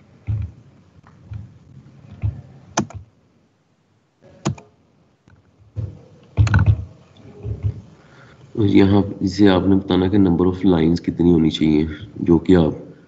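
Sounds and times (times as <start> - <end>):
soft low thumps: 0.3 - 0.6, 5.6 - 7.9
computer mouse clicking: 2.1 - 3.0, 4.4 - 4.7, 6.2 - 6.9.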